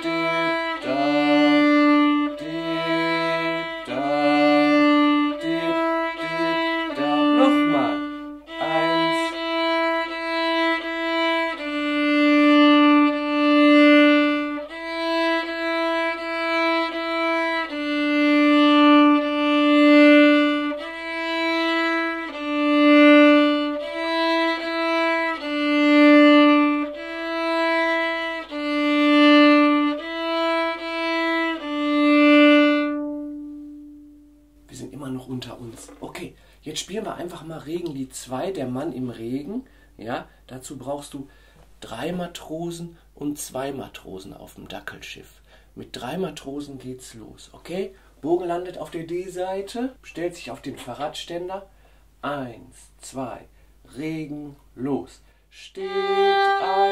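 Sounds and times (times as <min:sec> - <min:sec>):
solo violin tune: 0:00.0 - 0:34.7, 0:55.7 - 0:56.9.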